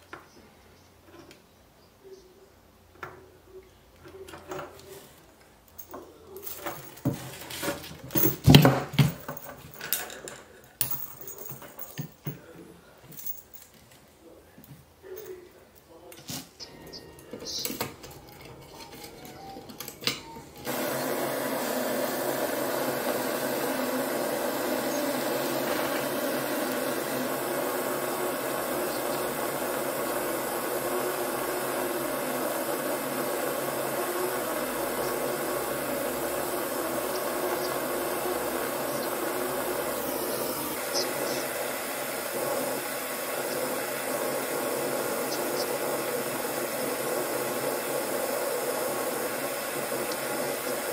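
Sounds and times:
gas torch hissing: 20.6 - 50.9.

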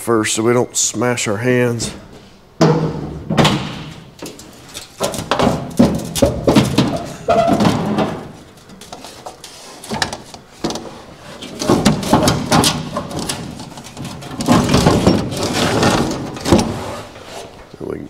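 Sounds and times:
metal hood clunking and scraping: 1.8 - 17.7.

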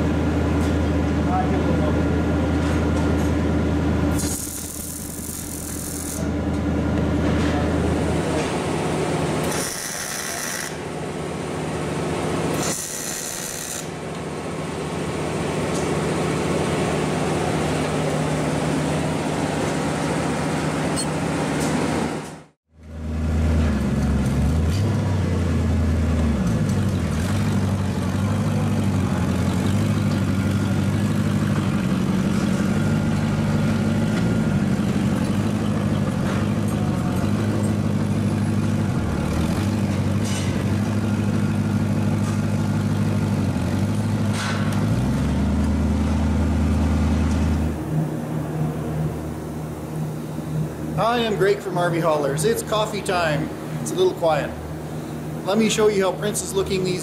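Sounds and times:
welding arc crackling: 4.2 - 6.3, 12.6 - 13.9
vehicle engine running: 22.8 - 51.0.

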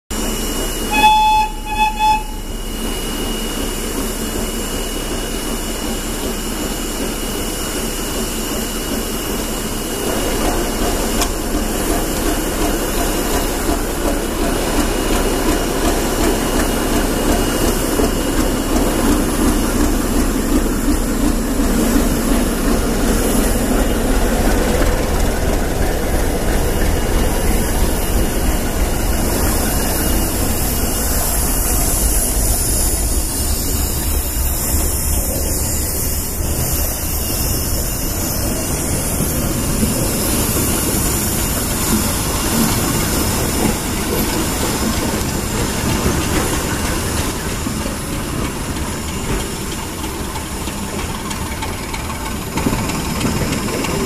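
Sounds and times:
diesel locomotive engine running: 0.1 - 54.0
train wheels rumbling on rails: 0.1 - 54.0
train horn: 0.9 - 2.8.

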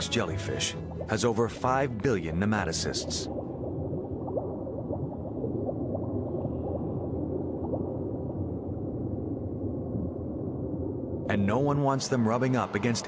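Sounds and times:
muffled underwater rumble: 0.0 - 13.0
gurgling bubbles: 0.7 - 13.0.

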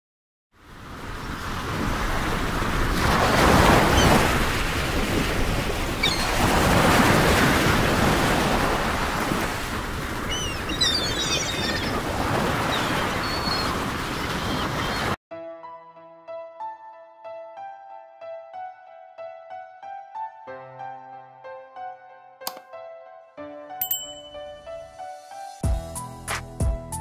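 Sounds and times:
wind: 0.5 - 15.2, 23.8 - 26.4
choppy lake water: 0.6 - 15.2.

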